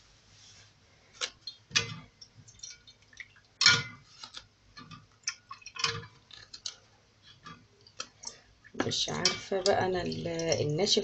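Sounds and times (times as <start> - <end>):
pastry sheets crackling: 3.6 - 11.0.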